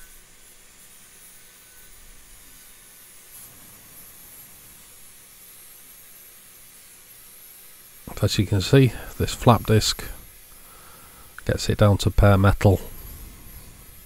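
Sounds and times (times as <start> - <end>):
faint steady hiss: 0.0 - 14.0
low hum: 3.2 - 6.4.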